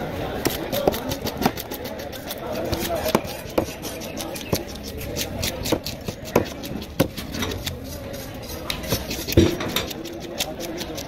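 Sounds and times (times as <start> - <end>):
knife chopping on wooden board: 2.3 - 7.8, 8.7 - 11.0.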